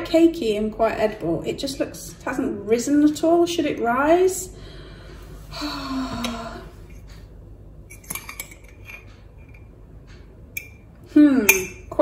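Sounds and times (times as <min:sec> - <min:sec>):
cutlery clinking against a mug: 0:07.9 - 0:09.7, 0:10.6 - 0:10.9, 0:11.5 - 0:12.0.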